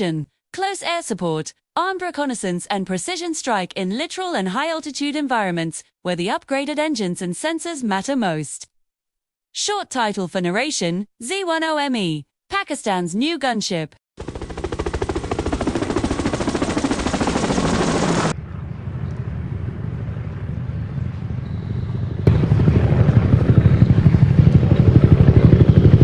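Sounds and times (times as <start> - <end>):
helicopter rotor chopping: 14.2 - 18.4, 22.2 - 26.0.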